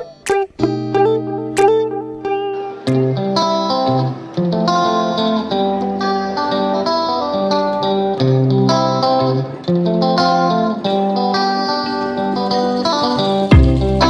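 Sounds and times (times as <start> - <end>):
plucked guitar notes: 0.0 - 14.0
steady bass: 13.5 - 14.0.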